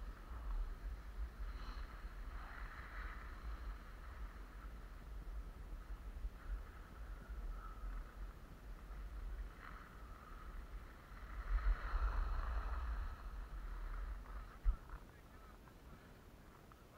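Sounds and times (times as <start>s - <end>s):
wind buffeting microphone: 0.0s - 16.9s
skis hissing over snow: 9.4s - 14.6s.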